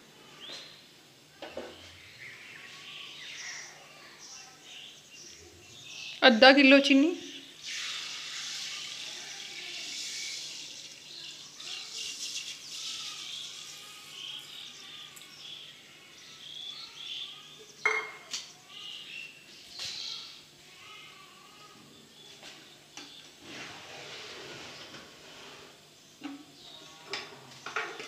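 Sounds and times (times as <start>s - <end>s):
faint birds chirping: 0.0s - 28.0s
sugar pouring into water: 7.6s - 14.5s.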